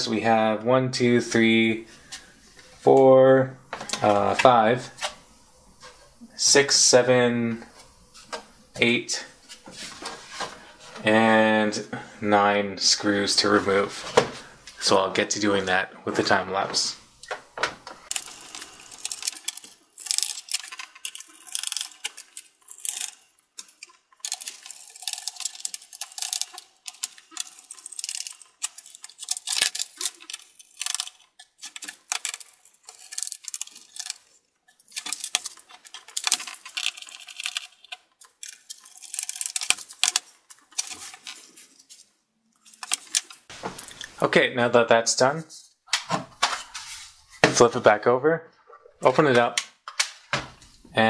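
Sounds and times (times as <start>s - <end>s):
screwdriver clicking and rattling: 18.1s - 34.2s, 34.8s - 41.2s.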